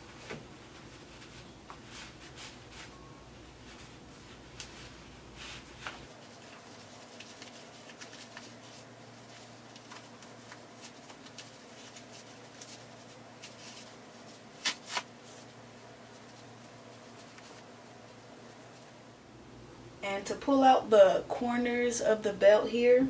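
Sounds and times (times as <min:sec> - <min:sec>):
denim fabric rustling: 0:03.6 - 0:19.1.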